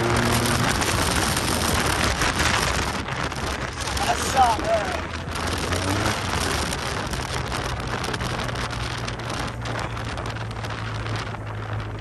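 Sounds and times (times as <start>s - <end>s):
scooter engine cruising: 0.0s - 12.0s
wind rushing over microphone: 0.0s - 12.0s.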